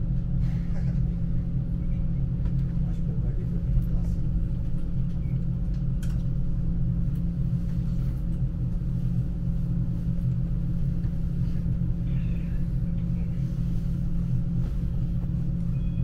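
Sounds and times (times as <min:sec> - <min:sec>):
faint steady hum: 0:00.0 - 0:16.0
train rumbling on track: 0:00.0 - 0:16.0.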